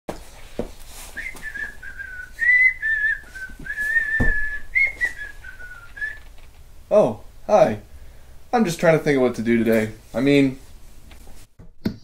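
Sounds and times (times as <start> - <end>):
person whistling a tune: 1.2 - 6.2.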